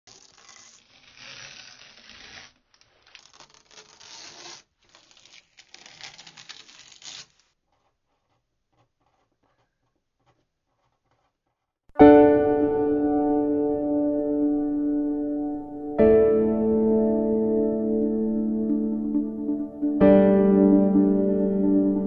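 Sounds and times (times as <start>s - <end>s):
tape peeling off paper: 0.0s - 8.4s.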